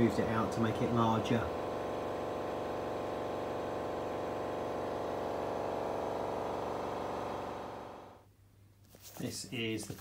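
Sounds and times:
machine humming: 0.0s - 8.2s.

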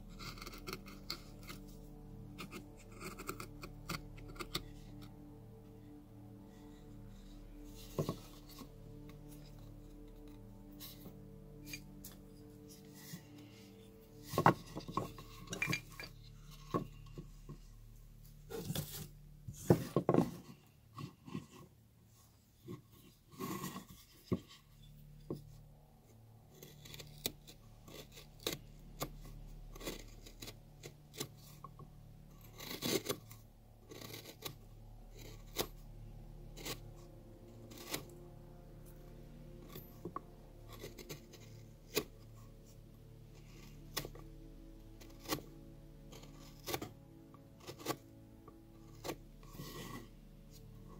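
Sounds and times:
gouge scraping bark: 0.0s - 5.2s, 26.5s - 50.9s.

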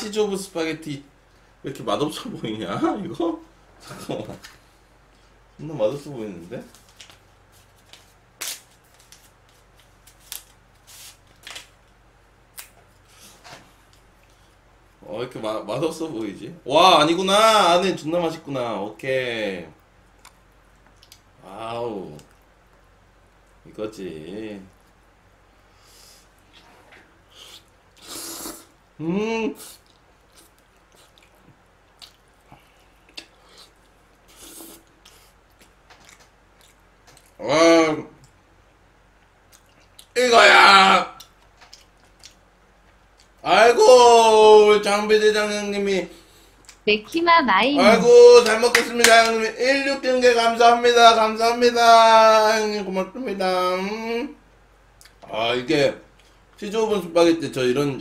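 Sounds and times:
wet chewing: 29.7s - 37.4s, 41.2s - 43.4s
man's voiced exclamation: 40.2s - 41.2s, 47.8s - 48.4s.

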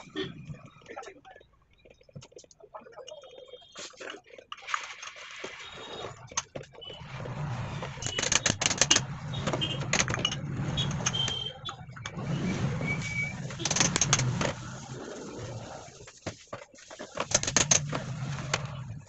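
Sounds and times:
metal parts clicking and clinking: 17.2s - 18.0s.

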